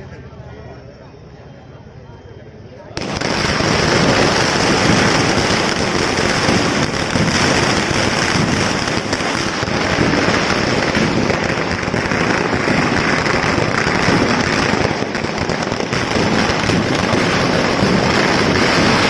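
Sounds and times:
firecrackers crackling: 3.0 - 19.0.

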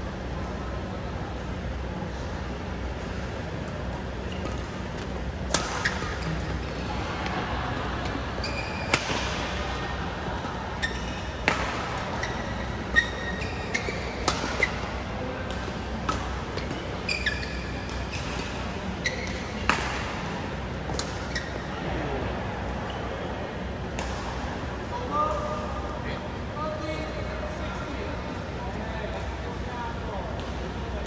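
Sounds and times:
shoes squeaking on court: 4.1 - 6.8, 8.4 - 9.0, 10.4 - 19.7, 21.0 - 21.7
racket striking shuttlecock: 5.5 - 6.1, 8.9 - 9.6, 11.4 - 12.0, 14.2 - 14.8, 19.6 - 20.1.

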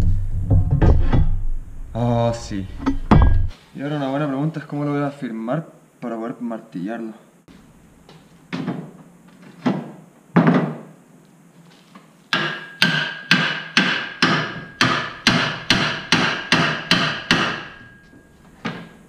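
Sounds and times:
hammer striking metal: 12.3 - 18.2
metallic ringing tone: 17.8 - 18.4.

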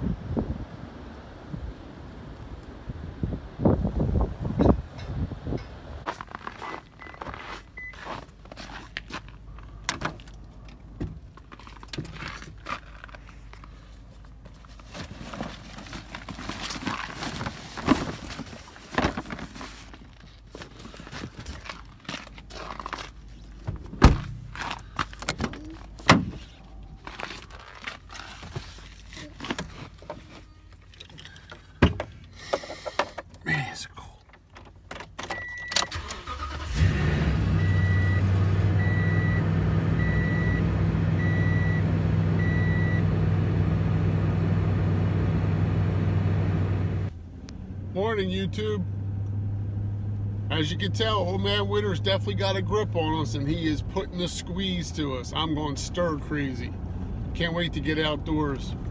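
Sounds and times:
clicks and rustles of handling objects: 6.1 - 35.3
loud thunks: 23.7 - 26.5.

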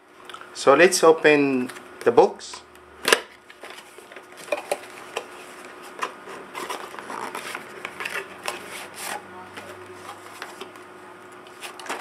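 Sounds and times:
packaging rustling: 3.4 - 10.8, 11.4 - 12.0
cardboard box scraping and rubbing: 6.6 - 7.6.

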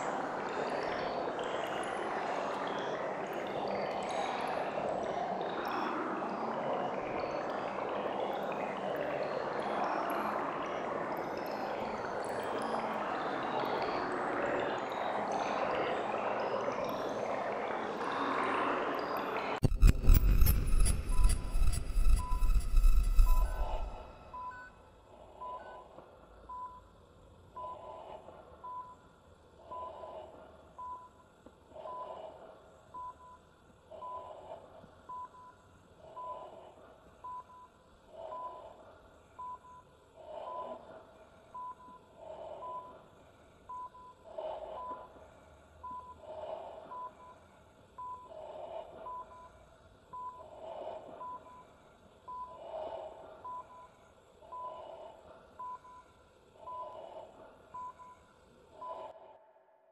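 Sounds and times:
dull pulsing sound: 0.0 - 26.8
short high electronic beeps: 19.6 - 24.7.

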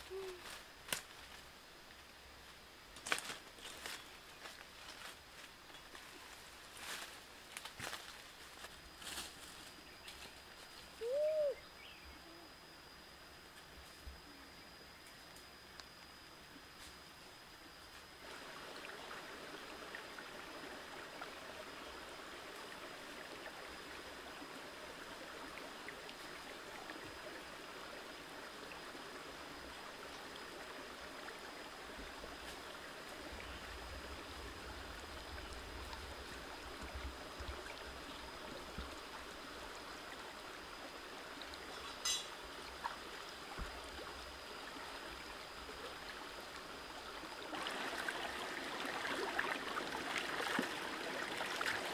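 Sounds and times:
faint high whine: 0.0 - 51.9
stream running over rocks: 15.2 - 51.9.

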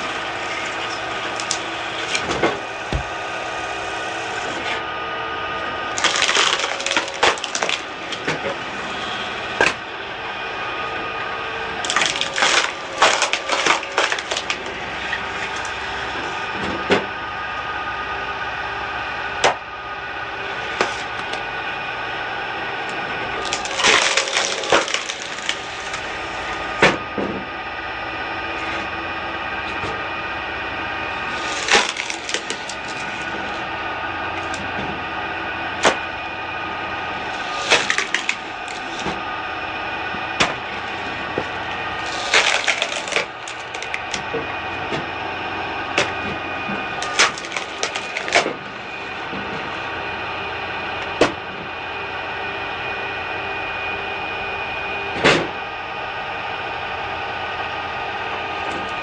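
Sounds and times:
wood splitting with cracks: 0.0 - 3.3, 5.9 - 9.9, 11.8 - 15.8, 20.7 - 21.4, 23.4 - 27.4, 31.2 - 33.6, 35.8 - 36.1, 37.3 - 39.2, 40.2 - 48.8, 51.1 - 51.4.

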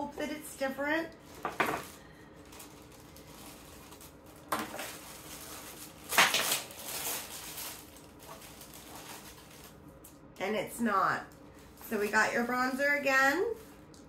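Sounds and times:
packaging rustling: 1.1 - 10.1.

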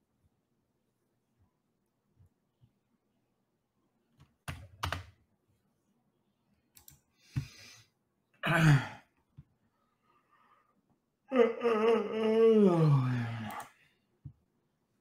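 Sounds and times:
computer keyboard clicks: 4.5 - 5.1, 6.8 - 7.0
man breathing: 7.1 - 8.0
man's low vocal sound: 11.3 - 13.6.

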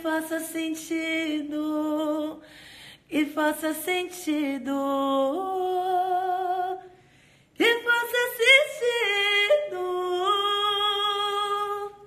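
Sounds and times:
woman singing unaccompanied: 0.0 - 2.5, 3.1 - 6.9, 7.6 - 12.0.

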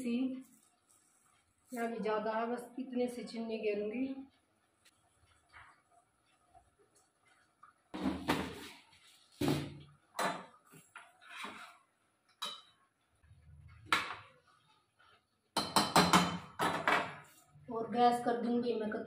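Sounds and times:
spoon scraping cooking pot: 10.5 - 12.8.

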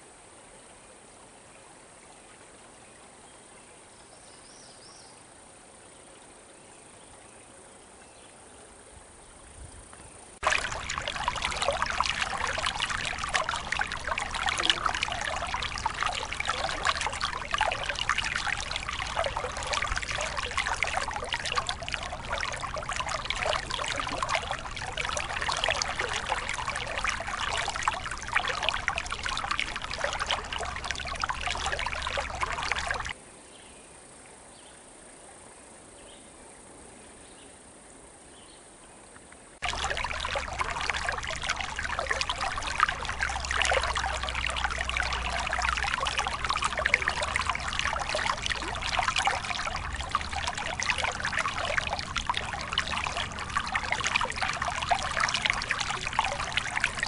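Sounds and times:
creek trickling over stones: 7.0 - 33.2, 39.4 - 57.0.

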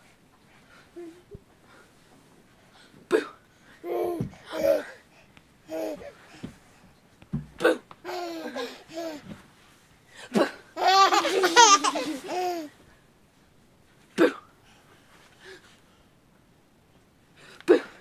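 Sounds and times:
baby laughing: 8.0 - 9.2, 10.8 - 12.7.

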